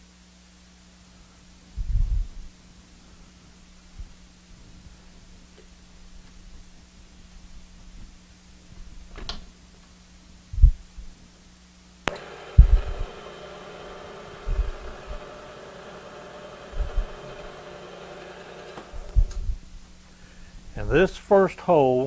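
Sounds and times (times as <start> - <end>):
dull low thumps: 10.6 - 11.1, 12.6 - 13.0
switch click: 12.1 - 13.1
milling machine spindle whine: 12.1 - 19.4.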